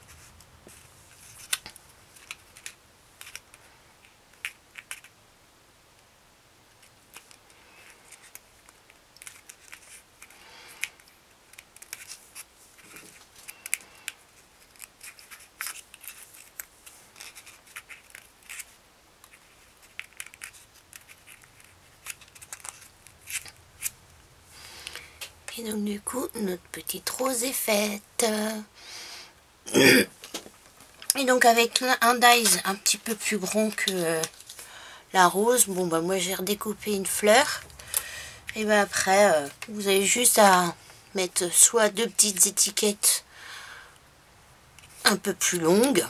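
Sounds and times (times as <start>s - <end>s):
paper rustling and crinkling: 6.8s - 24.0s, 32.0s - 34.8s.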